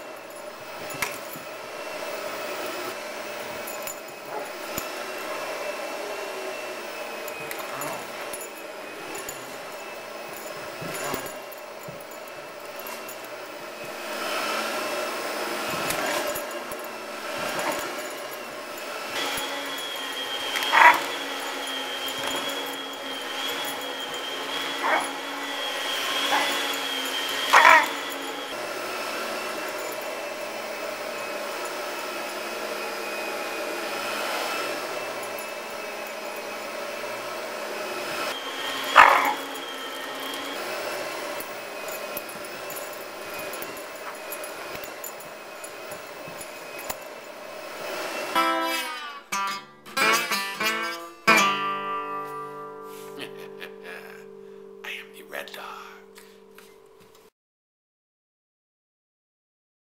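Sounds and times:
upright vacuum cleaner running: 0:00.0 - 0:54.8
dog barking: 0:04.2 - 0:05.7, 0:07.1 - 0:09.8, 0:10.5 - 0:12.0, 0:17.3 - 0:18.2, 0:19.1 - 0:28.5, 0:38.6 - 0:40.6.

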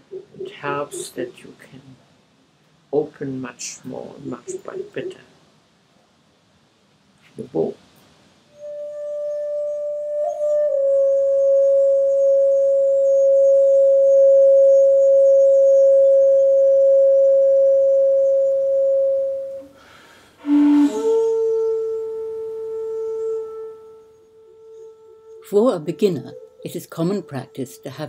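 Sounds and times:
flute holding long notes: 0:08.5 - 0:19.7, 0:20.4 - 0:28.0.

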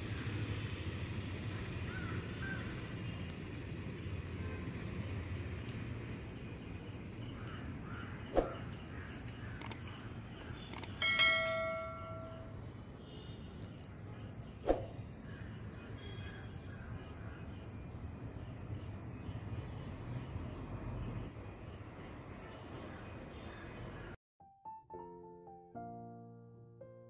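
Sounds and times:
sharp clicks: 0:09.6 - 0:09.8, 0:10.6 - 0:11.0
bell chime: 0:11.0 - 0:12.6.

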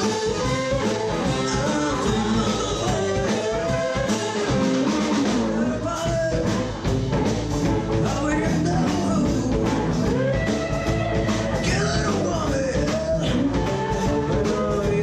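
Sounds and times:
drums: 0:00.0 - 0:15.0
electric guitars: 0:00.0 - 0:15.0
woman singing: 0:01.3 - 0:04.1.

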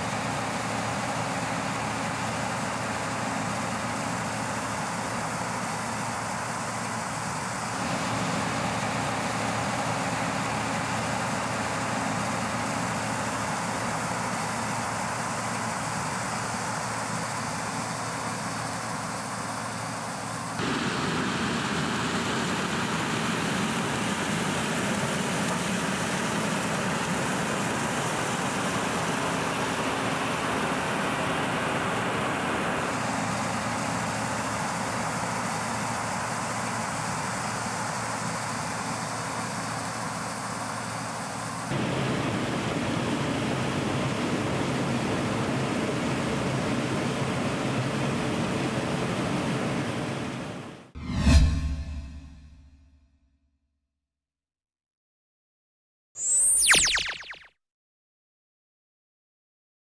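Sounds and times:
combine harvester running: 0:00.0 - 0:50.8.

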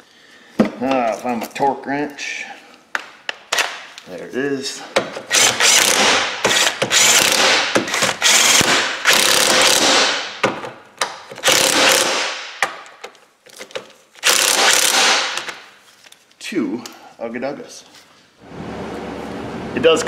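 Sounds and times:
pneumatic air ratchet running: 0:05.3 - 0:10.0, 0:11.4 - 0:12.2, 0:14.2 - 0:15.5.

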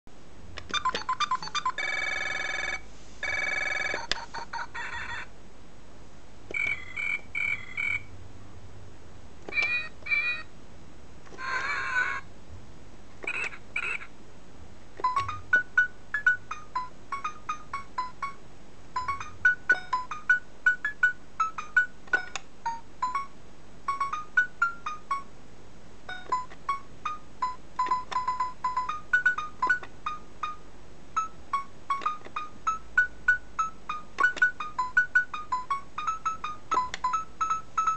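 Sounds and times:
toy phone ringtone trill: 0:00.8 - 0:05.3, 0:06.5 - 0:08.1, 0:09.5 - 0:10.5, 0:13.3 - 0:14.1, 0:15.0 - 0:18.4, 0:19.0 - 0:23.3, 0:23.9 - 0:25.3, 0:26.1 - 0:30.6, 0:31.2 - 0:37.9
toy sound effects: 0:06.5 - 0:08.1, 0:09.5 - 0:10.5, 0:11.3 - 0:12.3, 0:13.2 - 0:14.1, 0:15.0 - 0:18.4.

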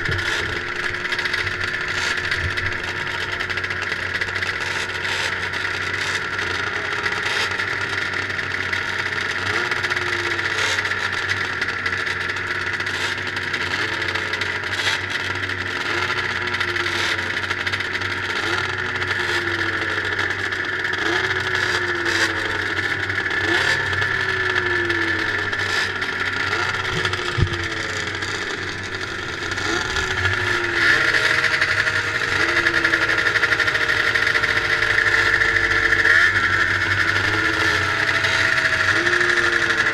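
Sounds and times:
snowmobile engines idling: 0:00.0 - 0:39.9
engine revving blips: 0:20.9 - 0:39.9.

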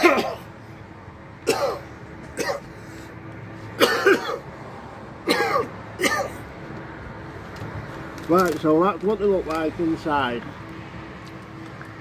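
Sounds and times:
man coughing: 0:00.0 - 0:00.5, 0:01.4 - 0:02.7, 0:03.8 - 0:04.4, 0:05.2 - 0:06.4.

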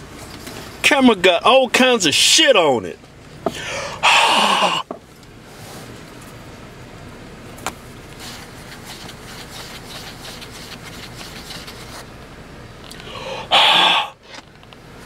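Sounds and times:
car engine idling: 0:00.0 - 0:15.0
fingertip rubbing camera lens: 0:08.2 - 0:12.0.

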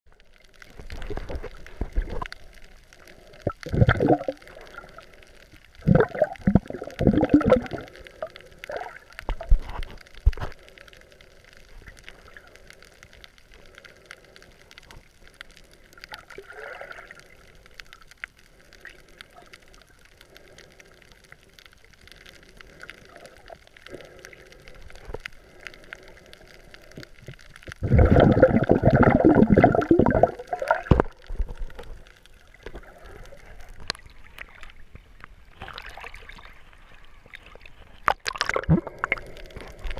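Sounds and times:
underwater bubbles bursting: 0:03.4 - 0:05.1, 0:05.7 - 0:09.7, 0:27.7 - 0:31.8, 0:37.3 - 0:39.9.

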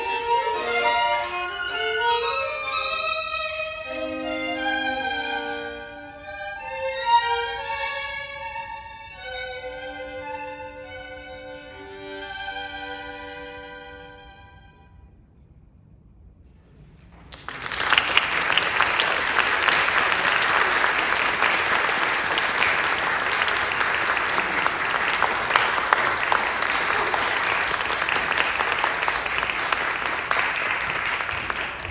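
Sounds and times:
audience applause: 0:17.3 - 0:31.9.

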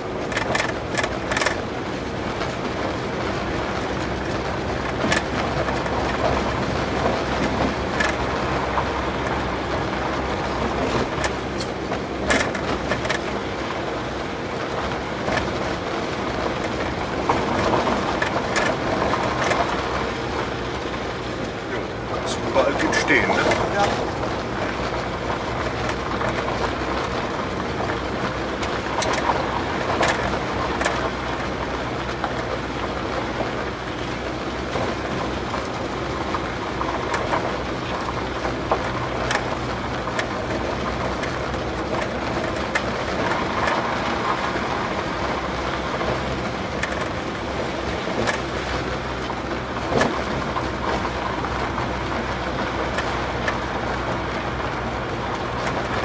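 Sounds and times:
engine drone: 0:00.0 - 0:56.0
tyres rumbling on gravel: 0:00.0 - 0:56.0.

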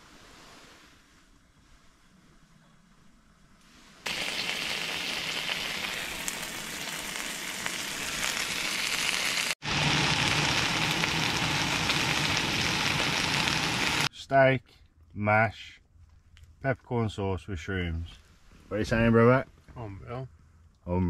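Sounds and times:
steak sizzling in a frying pan: 0:04.1 - 0:14.1.

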